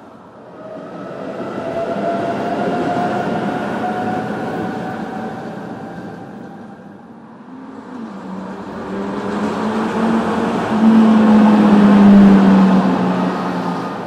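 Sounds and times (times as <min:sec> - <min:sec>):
vehicle passing: 0:07.2 - 0:14.0.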